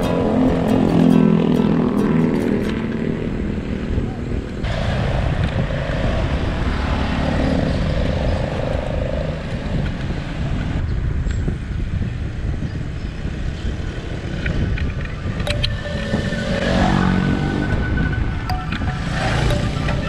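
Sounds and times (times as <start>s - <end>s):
motorcycle passing: 0.0s - 9.8s, 15.6s - 20.0s
road traffic: 0.0s - 20.0s
wind rumble on microphone: 0.0s - 20.0s.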